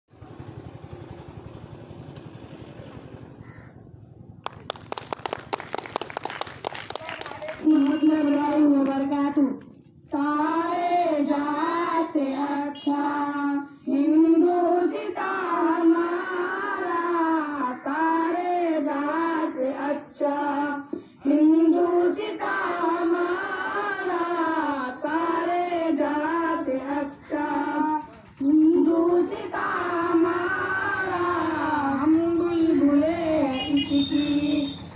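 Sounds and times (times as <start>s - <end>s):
child singing: 7.7s - 34.7s.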